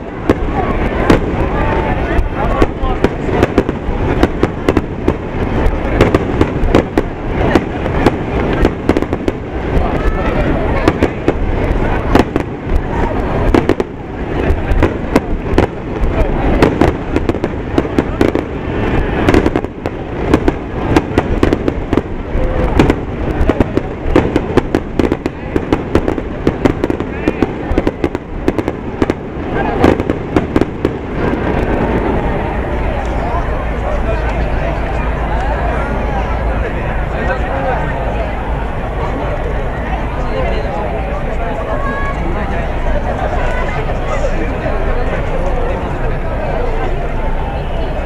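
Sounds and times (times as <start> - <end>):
continuous low rumble: 0.0 - 48.0
firework shells bursting: 0.2 - 10.0, 10.7 - 32.2.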